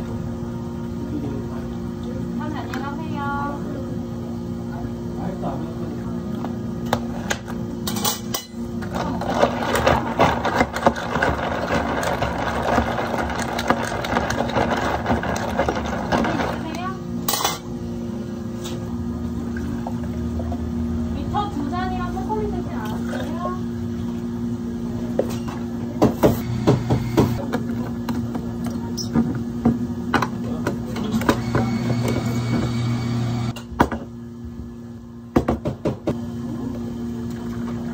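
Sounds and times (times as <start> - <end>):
electrical hum: 0.0 - 37.9
ice rattling in plastic cup: 9.3 - 16.6.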